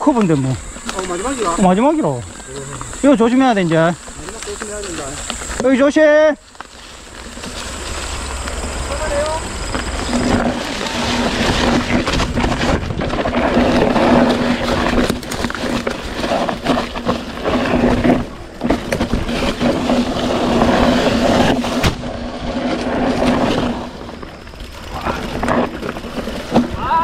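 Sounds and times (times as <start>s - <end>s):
bike knocking and rattling: 0.0s - 27.0s
bike tyres on dirt trail: 0.0s - 27.0s
wind on microphone: 8.3s - 25.8s.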